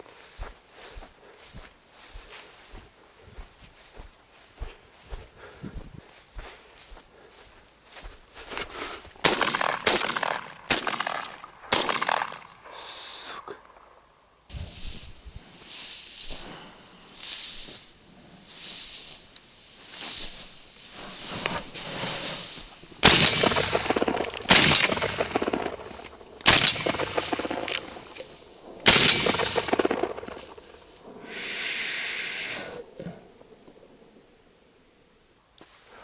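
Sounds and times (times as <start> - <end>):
footsteps through dry grass: 0.0 - 28.7, 35.4 - 36.0
shotgun shots: 9.2 - 12.8, 23.0 - 25.7, 28.8 - 30.2.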